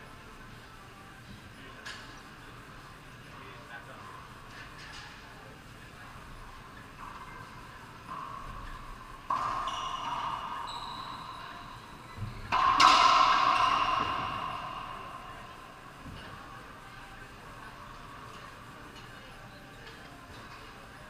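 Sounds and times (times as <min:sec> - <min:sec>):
racquetball hits ringing: 0:08.1 - 0:16.5.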